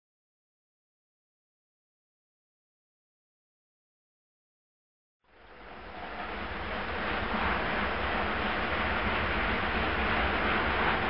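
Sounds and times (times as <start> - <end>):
rushing hiss with low rumble: 5.3 - 11.0.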